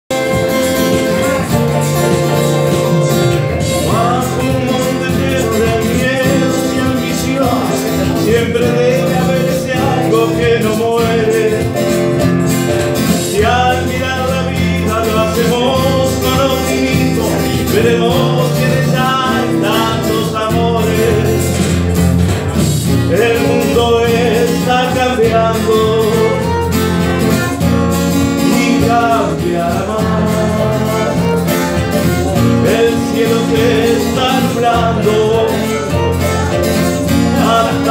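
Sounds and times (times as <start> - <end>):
small band playing: 0.0 - 37.9
violin melody: 0.1 - 4.7, 25.4 - 37.9.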